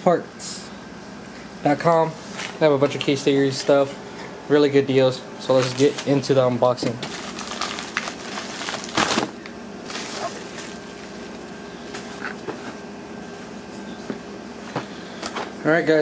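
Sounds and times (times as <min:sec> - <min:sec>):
plastic mailer tearing and rustling: 0:05.4 - 0:12.2.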